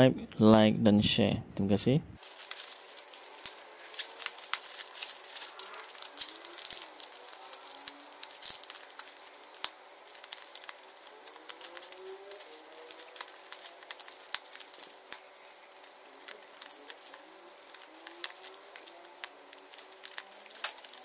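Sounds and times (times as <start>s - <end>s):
plastic and bubble wrap crinkling: 2.2s - 21.0s.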